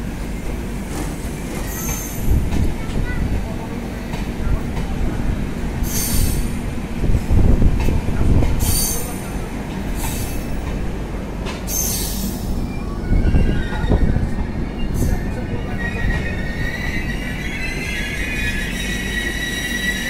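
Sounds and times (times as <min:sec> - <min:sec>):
train wheels rumbling on rail: 0:00.0 - 0:20.0
high wheel squeals: 0:11.7 - 0:20.0.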